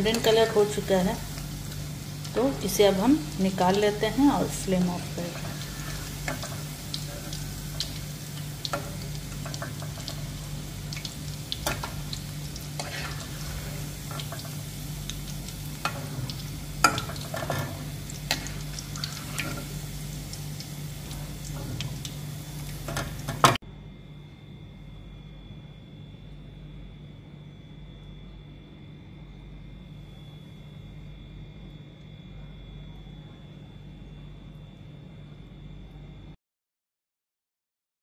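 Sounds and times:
meat sizzling in hot oil: 0:00.0 - 0:23.6
low hum: 0:00.0 - 0:36.4
metal spoon scraping a pan: 0:05.2 - 0:10.3, 0:11.6 - 0:14.6, 0:15.8 - 0:19.8.

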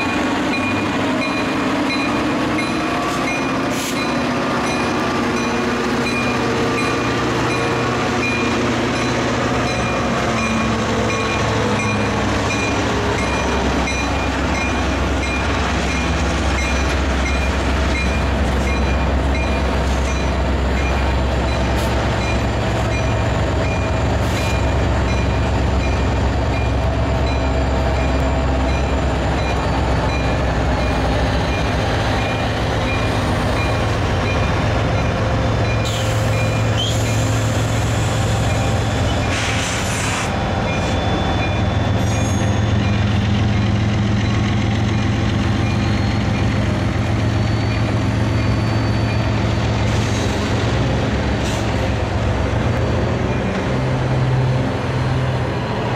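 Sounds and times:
diesel locomotive engines droning: 0:00.0 - 0:55.9
rolling noise of freight cars: 0:00.0 - 0:55.9
high wheel squeal: 0:35.7 - 0:50.7.

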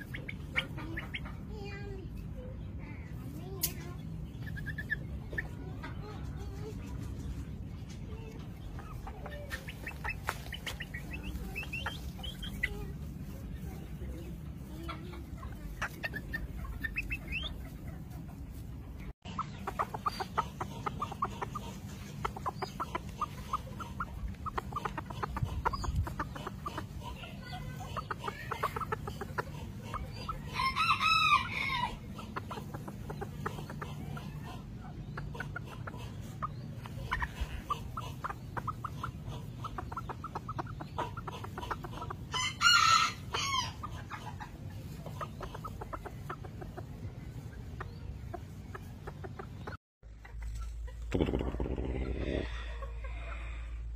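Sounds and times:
chickens clucking: 0:00.0 - 0:53.9
rooster crowing: 0:30.6 - 0:32.0.

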